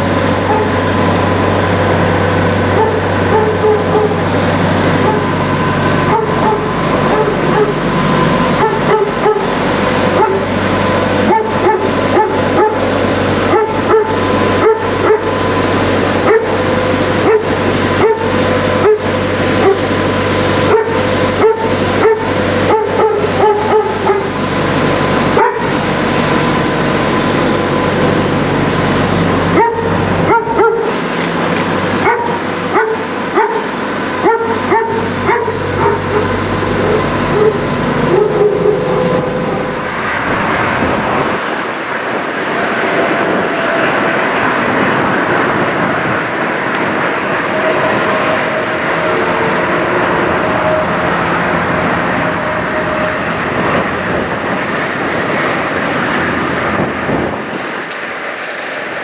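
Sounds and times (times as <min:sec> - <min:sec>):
diesel engines idling: 0:00.0 - 0:59.0
dog yipping: 0:11.3 - 0:12.8, 0:13.5 - 0:15.3, 0:25.4 - 0:25.6, 0:29.6 - 0:30.9, 0:32.0 - 0:38.9.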